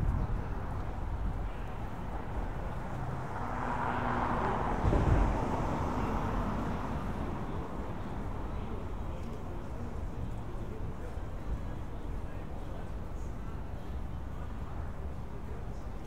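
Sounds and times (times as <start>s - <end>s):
vehicle passing: 1.9s - 8.6s
short low thump: 4.8s - 5.4s.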